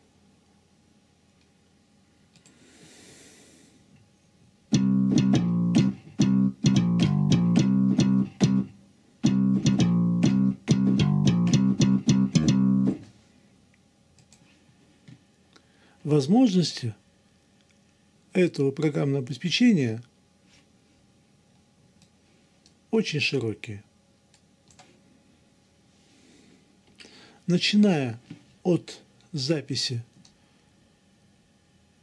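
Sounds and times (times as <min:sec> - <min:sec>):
bass guitar riff: 0:04.7 - 0:13.1.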